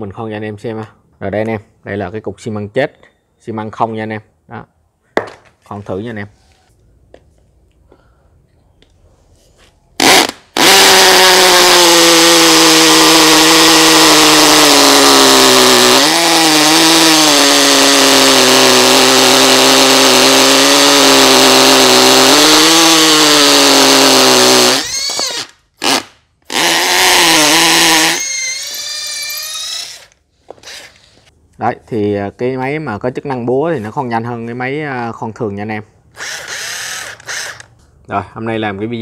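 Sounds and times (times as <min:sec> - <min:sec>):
hammer drill boring into concrete: 0:10.0 - 0:31.3, 0:36.2 - 0:37.7.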